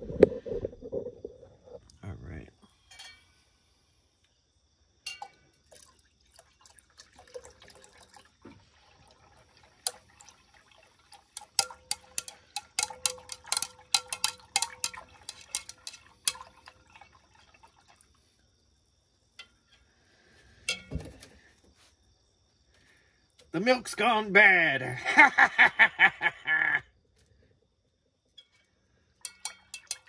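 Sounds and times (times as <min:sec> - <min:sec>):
glass rod clinking in beaker: 0:05.0 - 0:05.4, 0:11.4 - 0:16.5, 0:29.2 - 0:30.0
liquid sloshing: 0:05.6 - 0:18.4.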